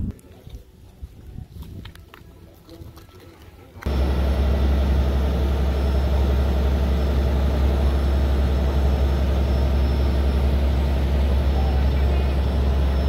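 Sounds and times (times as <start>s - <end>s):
ferry engine droning: 3.8s - 13.0s.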